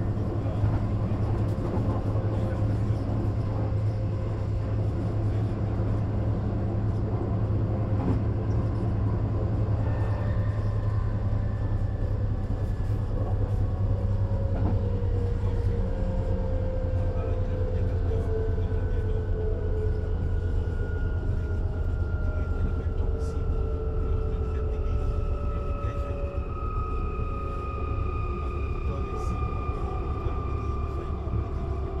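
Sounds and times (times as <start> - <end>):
train rumble and hum: 0.0 - 32.0
thin whining traction tone: 18.8 - 32.0.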